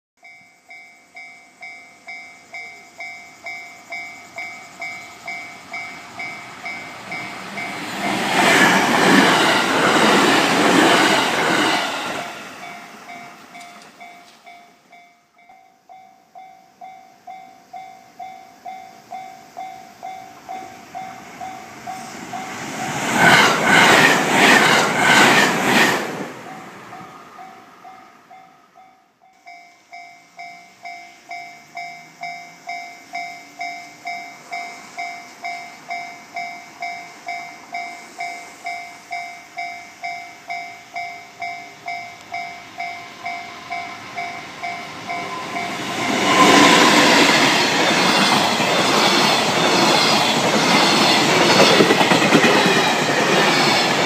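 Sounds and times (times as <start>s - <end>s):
electric trains passing: 0.2s - 54.0s
train wheels clicking: 0.3s - 15.6s, 19.5s - 28.5s, 29.3s - 54.0s
level crossing alarm ringing: 26.5s - 54.0s.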